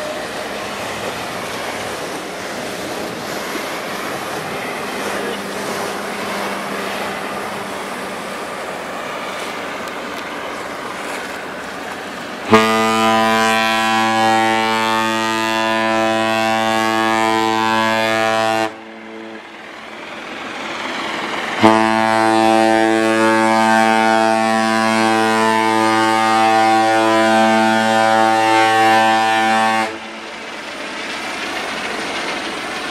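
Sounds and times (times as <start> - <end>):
ship's horn blasts: 12.4 - 19.5, 21.6 - 30.2.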